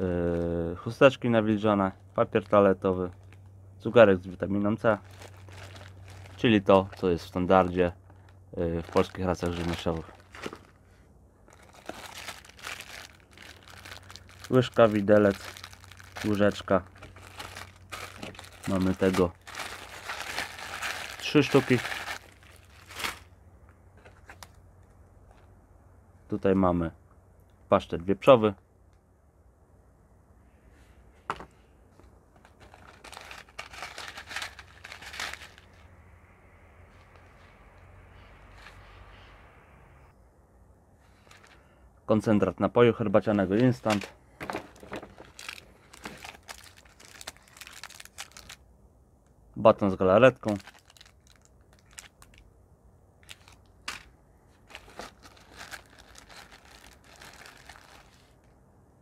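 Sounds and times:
plastic and foil packaging crinkling: 4.8 - 10.8, 11.5 - 23.3, 32.4 - 35.8, 41.1 - 41.6, 43.4 - 48.6, 50.3 - 52.4, 53.2 - 58.5.

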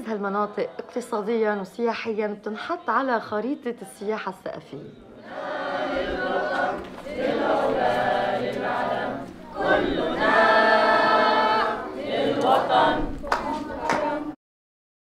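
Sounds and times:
many voices singing together: 5.1 - 14.4.

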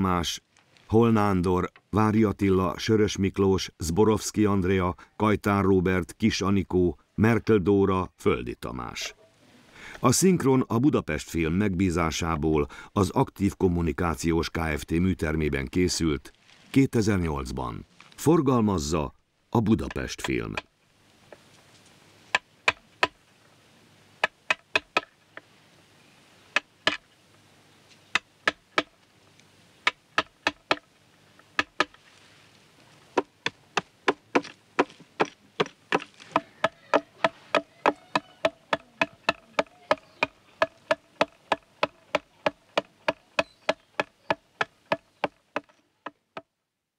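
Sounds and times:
blade chopping wood: 24.2 - 25.1, 26.6 - 27.0, 28.2 - 28.9, 29.8 - 30.9, 31.6 - 32.0, 33.2 - 45.8.

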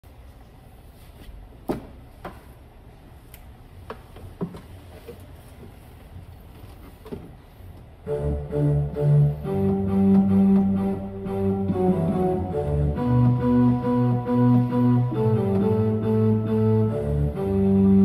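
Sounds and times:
organ playing: 8.0 - 18.0.

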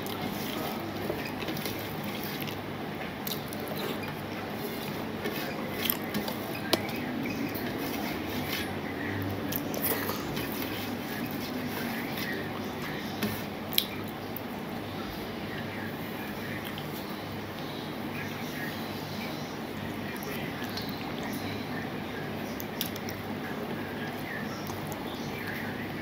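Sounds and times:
chewing: 0.0 - 2.6, 3.2 - 13.0
steady background noise: 0.0 - 26.0.

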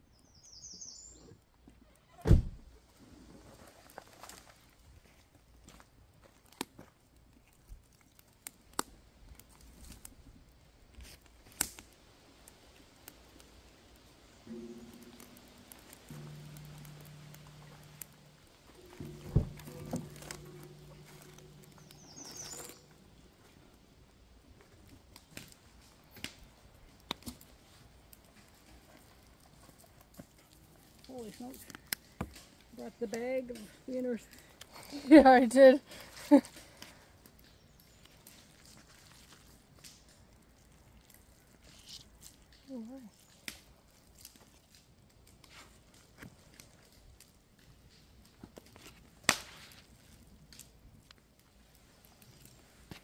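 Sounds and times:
wooden sticks clicking and knocking: 14.5 - 23.8.

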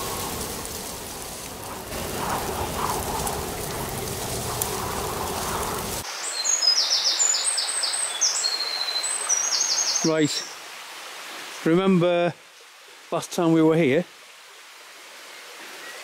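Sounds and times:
steady hiss: 0.0 - 8.4
songbirds singing: 2.1 - 10.6.

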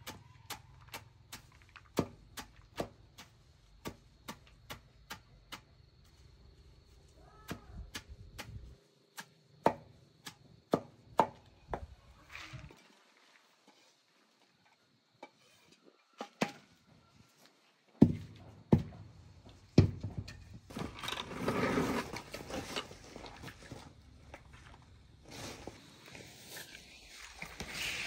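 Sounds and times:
rustling and clatter: 20.0 - 26.7.

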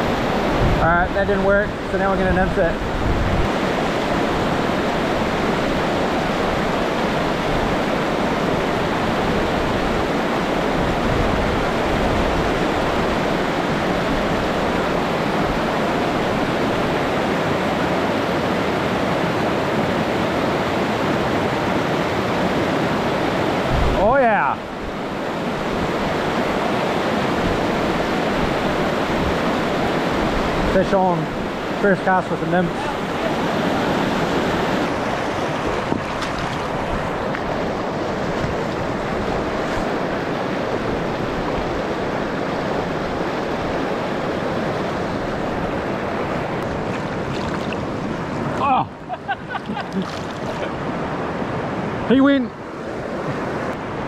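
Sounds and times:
river rapids rushing over rocks: 0.0 - 49.1.

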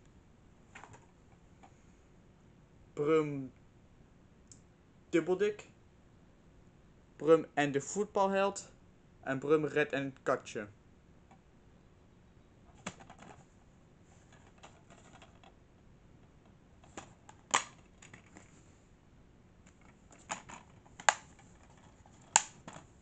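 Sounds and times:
plastic case clicks and rattles: 12.7 - 13.4, 14.3 - 15.6, 16.8 - 18.5, 19.7 - 22.9.

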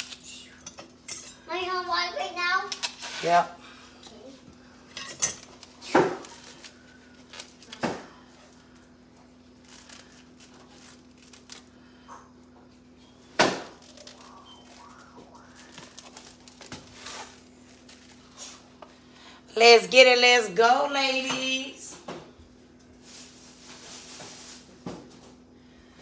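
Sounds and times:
steady low hum: 0.0 - 26.0
plastic wrap crinkling: 5.5 - 12.0, 13.5 - 18.8, 22.9 - 24.8.

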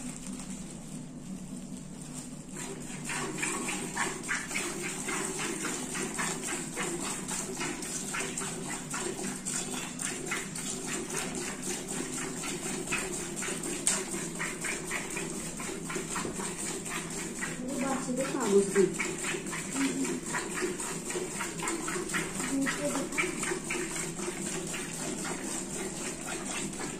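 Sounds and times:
milk squirting into steel bucket: 2.5 - 26.9.

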